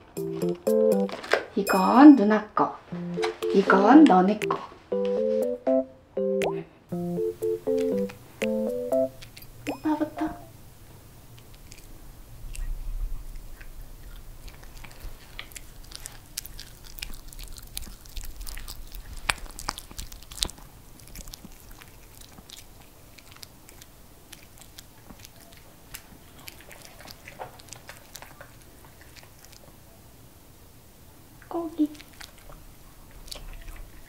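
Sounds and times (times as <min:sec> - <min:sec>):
dog chewing with wet clicks: 0:07.5 - 0:10.0, 0:11.2 - 0:29.9, 0:31.8 - 0:34.0.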